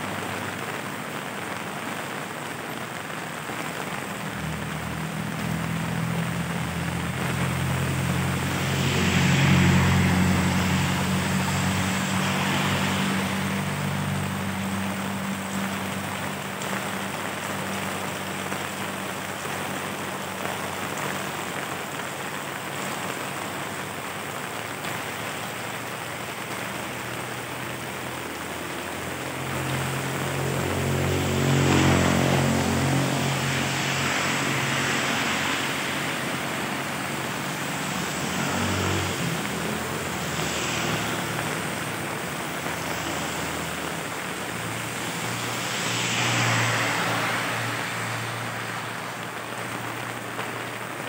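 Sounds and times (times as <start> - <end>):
heavy rain on street: 0.0 - 51.0
tyres hissing through water: 0.0 - 51.0
vehicle driving past: 4.6 - 18.8, 27.4 - 50.2.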